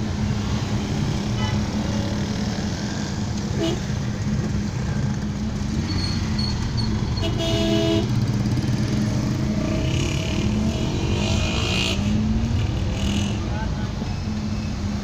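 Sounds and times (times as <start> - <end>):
motorcycles passing: 0.0 - 15.0.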